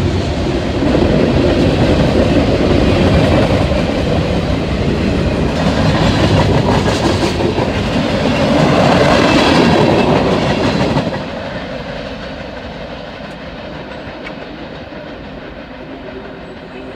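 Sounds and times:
freight train cars rolling past: 0:00.0 - 0:16.9.

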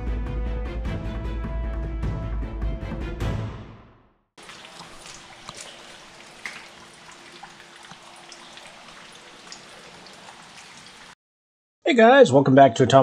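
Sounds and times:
water dripping: 0:04.4 - 0:11.2.

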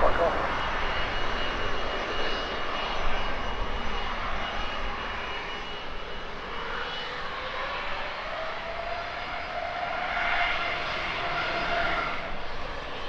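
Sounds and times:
jet engine rush: 0:00.0 - 0:13.0.

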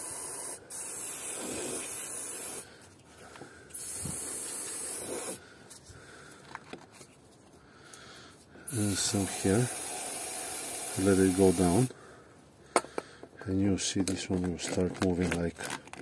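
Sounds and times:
aerosol can spraying: 0:00.0 - 0:02.7, 0:03.8 - 0:05.4, 0:08.7 - 0:11.9.

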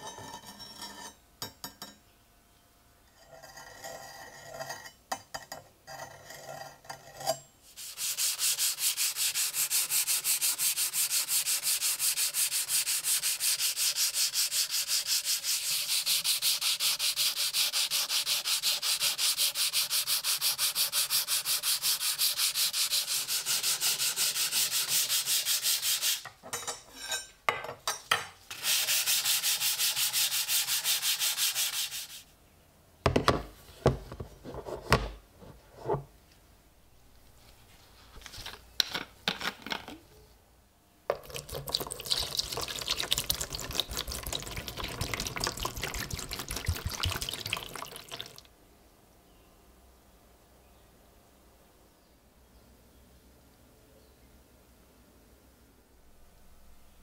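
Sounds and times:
sandpaper rubbing on steel blade: 0:07.7 - 0:26.2, 0:28.5 - 0:32.3.

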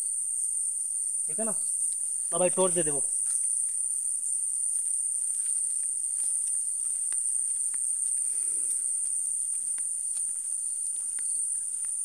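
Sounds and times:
crickets chirping: 0:00.0 - 0:12.0
footsteps on grass: 0:04.6 - 0:12.0.

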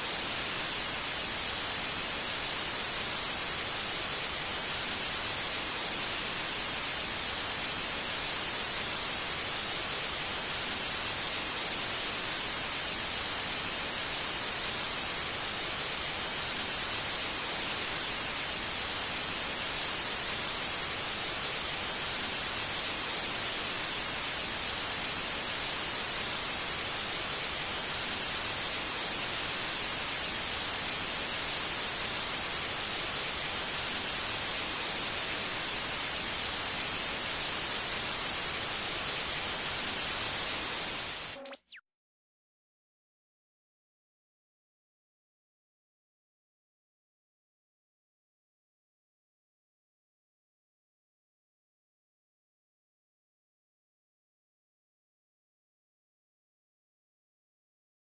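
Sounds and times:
television static hiss: 0:00.0 - 0:41.8.

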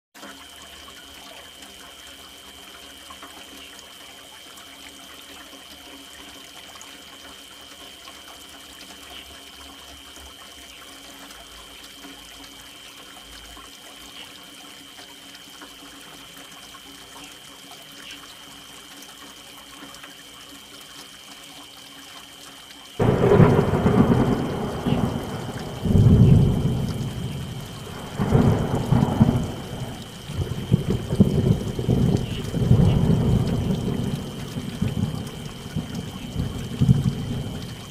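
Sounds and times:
rain falling: 0:22.9 - 0:37.9
thunderclap rumbling: 0:23.0 - 0:37.9.

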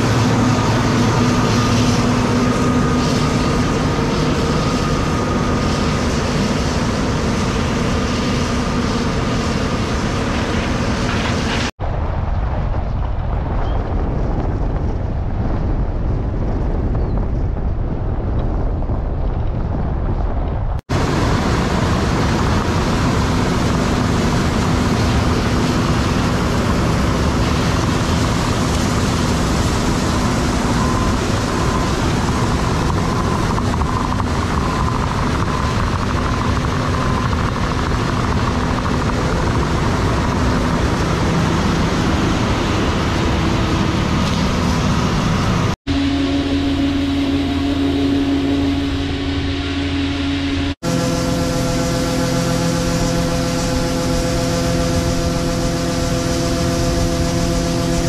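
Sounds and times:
combine engine drone and threshing: 0:00.0 - 0:58.0
faint steady whine: 0:20.9 - 0:58.0.

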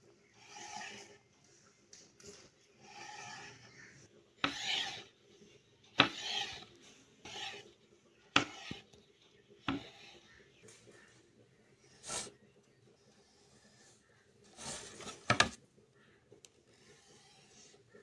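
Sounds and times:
knife scraping dough on board: 0:00.4 - 0:01.1, 0:02.8 - 0:05.2, 0:06.0 - 0:07.8, 0:08.4 - 0:09.0, 0:09.6 - 0:10.2, 0:16.7 - 0:17.8.

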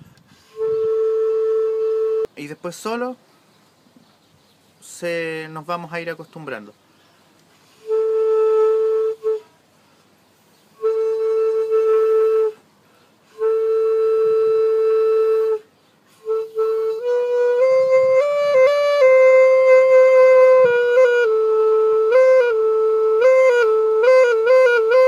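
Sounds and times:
mini saxophone notes: 0:00.2 - 0:02.3, 0:07.6 - 0:09.5, 0:10.8 - 0:12.6, 0:13.3 - 0:25.0.

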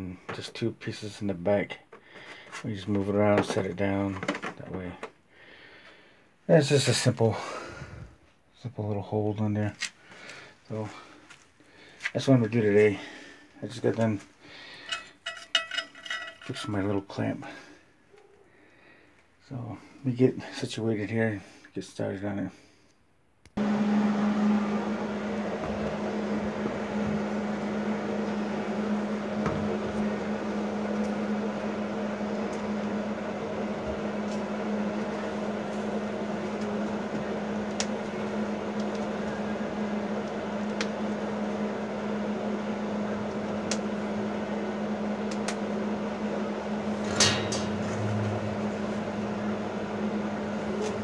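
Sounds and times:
welding machine humming: 0:23.6 - 0:51.0.

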